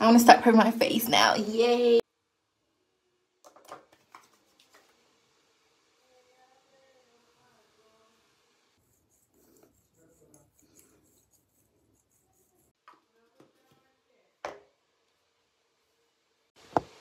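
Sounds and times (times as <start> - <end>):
rubbing and handling sounds: 3.8 - 5.0, 8.8 - 13.8.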